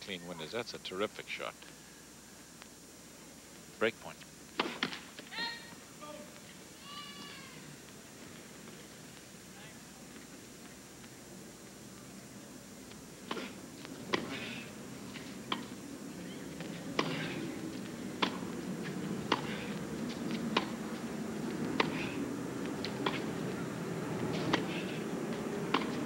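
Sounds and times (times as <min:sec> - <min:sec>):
racquet striking tennis ball: 0:18.2 - 0:18.4, 0:19.3 - 0:19.6, 0:20.5 - 0:20.8, 0:21.8 - 0:22.1, 0:25.7 - 0:26.0
tennis ball bouncing: 0:18.2 - 0:18.4, 0:19.3 - 0:19.6, 0:20.5 - 0:20.8, 0:22.9 - 0:23.3, 0:25.7 - 0:26.0.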